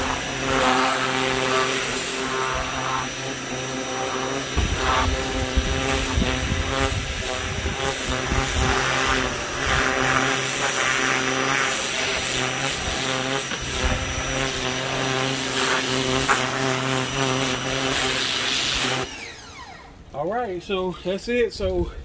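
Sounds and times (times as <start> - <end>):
water jet hissing: 0.0 - 19.1
pressure washer motor hum: 0.0 - 20.1.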